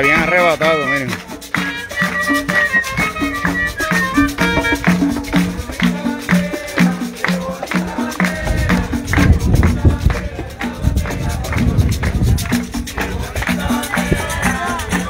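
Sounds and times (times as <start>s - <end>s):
higher melody notes: 0.0s - 5.6s
steady percussive beat: 0.0s - 15.0s.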